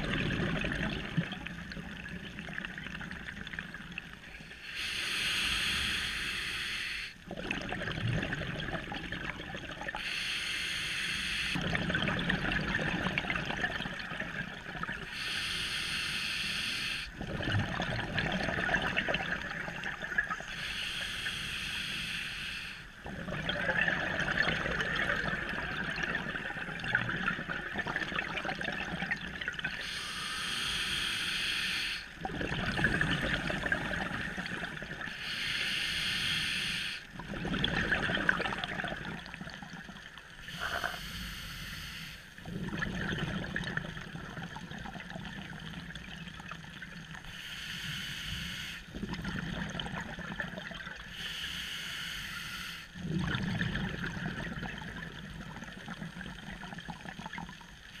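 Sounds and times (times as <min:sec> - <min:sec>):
bubbling exhaled air: 0:00.0 - 0:04.0, 0:04.7 - 0:10.3, 0:11.2 - 0:47.3, 0:48.9 - 0:51.2, 0:53.0 - 0:58.0
hissing regulator inhalations: 0:04.6 - 0:07.2, 0:10.0 - 0:11.6, 0:15.1 - 0:17.2, 0:20.4 - 0:23.0, 0:29.8 - 0:32.2, 0:32.8 - 0:37.2, 0:40.4 - 0:42.4, 0:47.2 - 0:49.0, 0:51.1 - 0:53.0.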